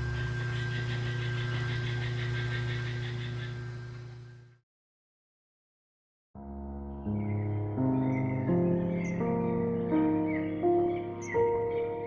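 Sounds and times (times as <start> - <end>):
potter's wheel motor humming: 0.0 - 4.6.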